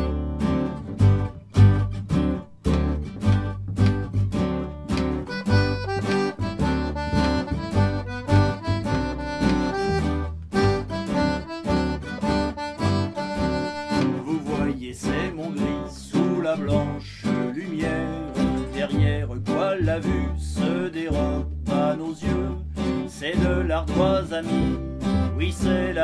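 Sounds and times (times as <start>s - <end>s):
accordion: 0.0s - 26.0s
acoustic guitars strumming: 0.0s - 26.0s
double bass notes: 0.0s - 26.0s.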